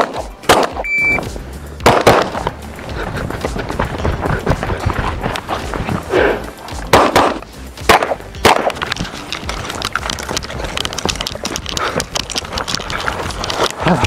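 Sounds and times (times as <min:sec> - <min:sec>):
gunshots with echo: 0:01.8 - 0:02.5.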